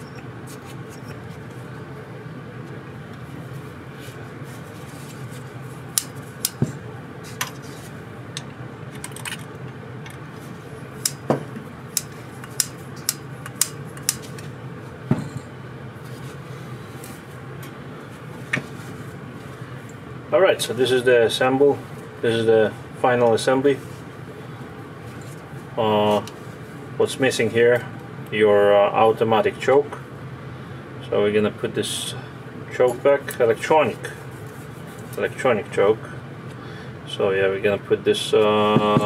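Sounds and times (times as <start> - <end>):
steady background hum: 0.0 - 39.0.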